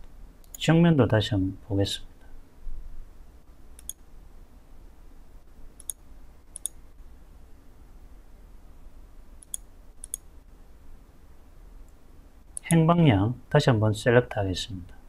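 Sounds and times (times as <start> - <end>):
faint low hum: 0.0 - 15.0
computer mouse button clicking: 9.4 - 10.2.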